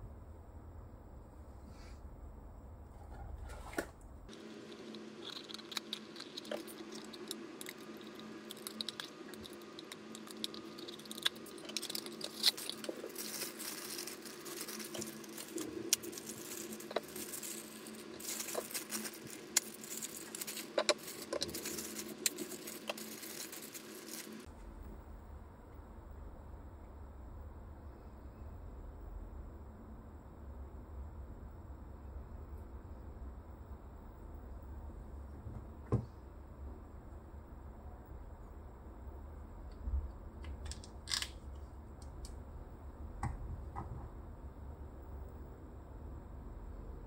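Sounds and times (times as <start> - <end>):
plastic bag crinkling: 4.3 - 24.5.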